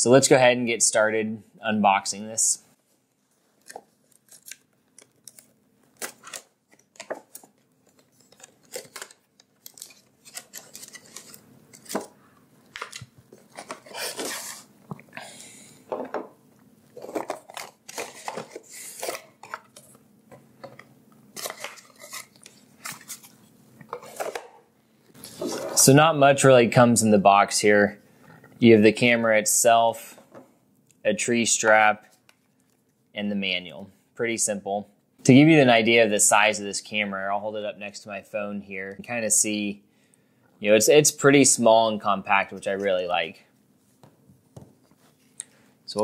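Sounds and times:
items set down on wooden table: 0:15.9 - 0:16.4.

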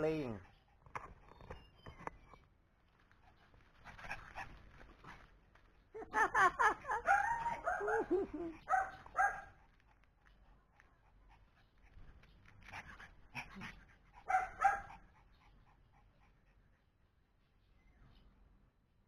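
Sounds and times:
small dog yapping and whining: 0:14.3 - 0:15.0.

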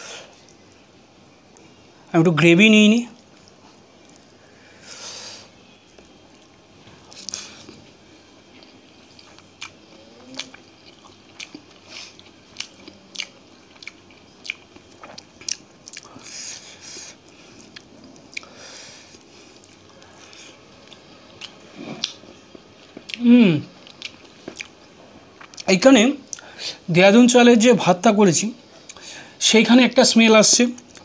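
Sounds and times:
wet chewing: 0:05.9 - 0:23.2, 0:23.8 - 0:25.7.

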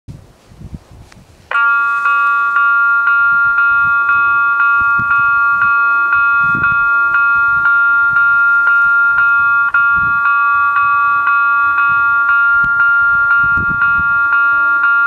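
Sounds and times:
level crossing warning bell: 0:01.5 - 0:15.0.

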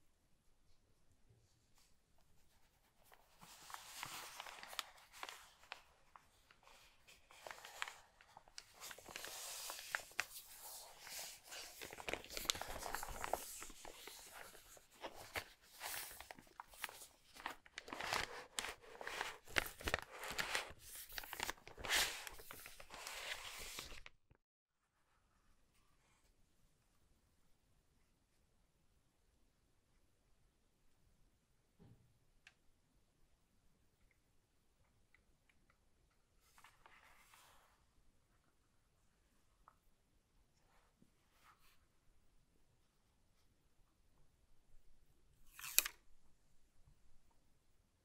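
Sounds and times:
plastic bag crinkling: 0:03.9 - 0:24.1.

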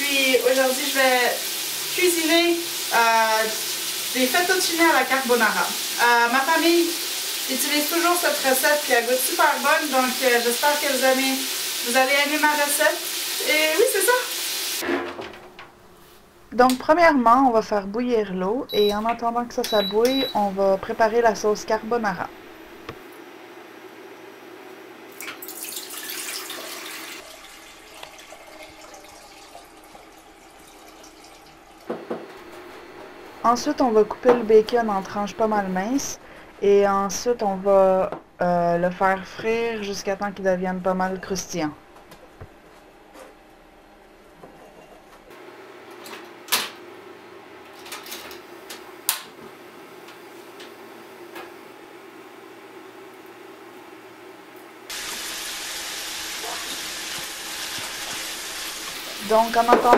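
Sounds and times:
water pouring into a saucepan: 0:00.2 - 0:14.8, 0:25.2 - 0:31.9.

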